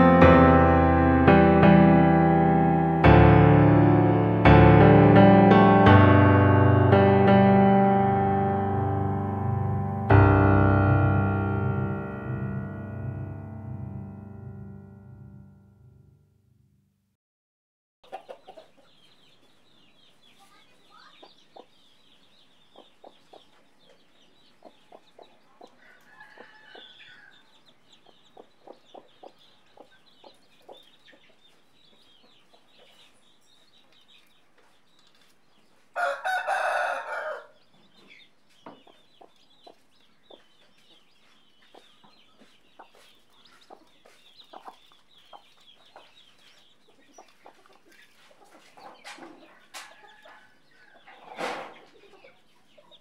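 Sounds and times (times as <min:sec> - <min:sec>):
chicks peeping: 0:18.0 - 0:53.0
rooster crowing: 0:25.8 - 0:27.5, 0:36.0 - 0:37.6.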